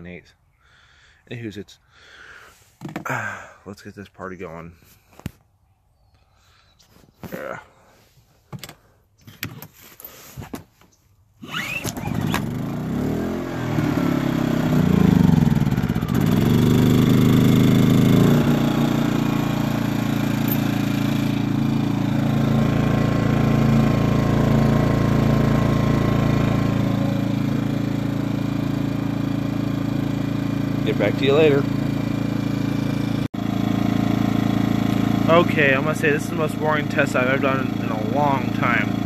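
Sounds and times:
small generator engine starting: 0:11.4 - 0:39.0.

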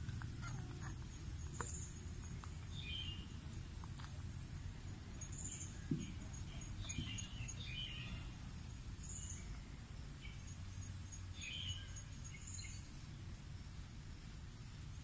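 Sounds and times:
faint high-pitched chirps: 0:05.1 - 0:13.2.

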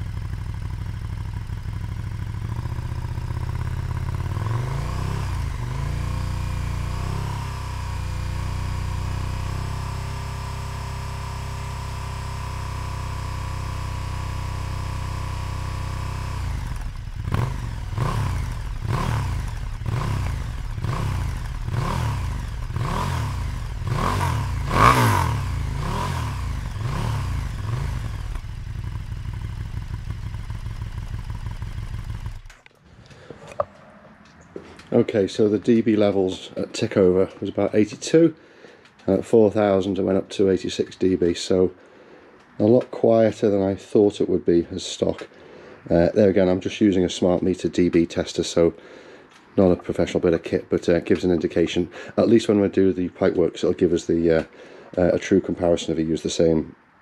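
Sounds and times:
motorcycle engine revving: 0:00.0 - 0:37.9.

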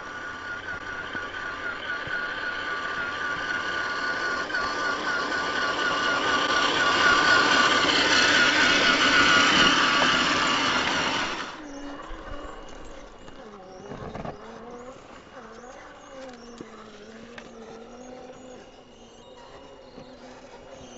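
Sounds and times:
electric motor and gear whine: 0:00.0 - 0:20.9.

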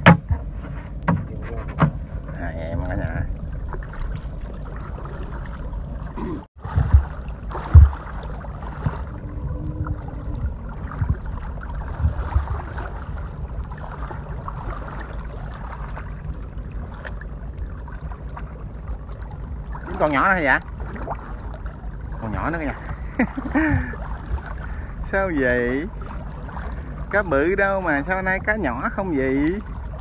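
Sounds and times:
loud thumps: 0:00.0 - 0:02.4, 0:06.3 - 0:08.1
steady low rumble: 0:00.0 - 0:30.0
water sloshing around wading legs: 0:00.3 - 0:30.0.

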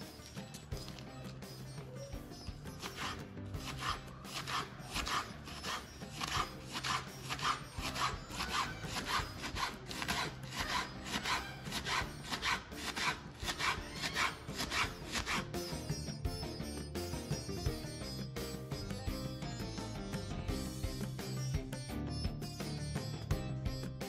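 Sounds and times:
knife slicing cabbage on board: 0:02.8 - 0:15.4.

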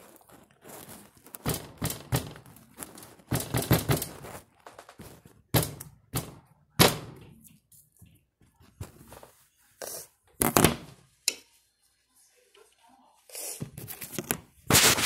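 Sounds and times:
hand pounding food on glass: 0:01.4 - 0:02.6, 0:03.3 - 0:04.4.

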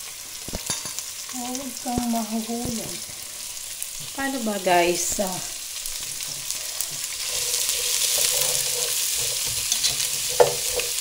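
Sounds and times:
onions sizzling in oil: 0:00.0 - 0:11.0
utensil stirring in pot: 0:05.6 - 0:11.0.

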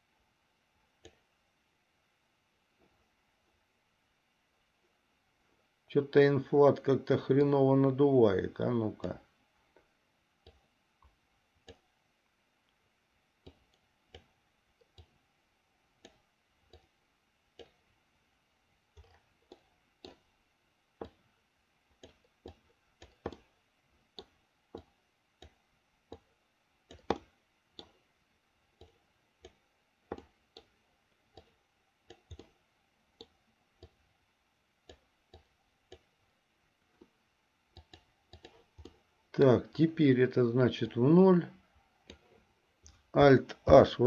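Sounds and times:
faint computer mouse clicks: 0:01.0 - 0:01.3, 0:13.4 - 0:15.2, 0:16.0 - 0:16.9, 0:17.6 - 0:17.8, 0:19.0 - 0:20.3, 0:26.9 - 0:28.0, 0:28.8 - 0:32.6, 0:34.8 - 0:36.1, 0:37.0 - 0:39.0, 0:42.0 - 0:43.0.

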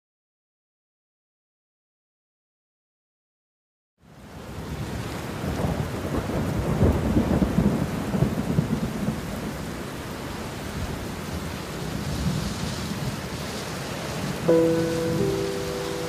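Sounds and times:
heavy rain: 0:04.0 - 0:16.0
rumble of thunder: 0:05.4 - 0:09.6.

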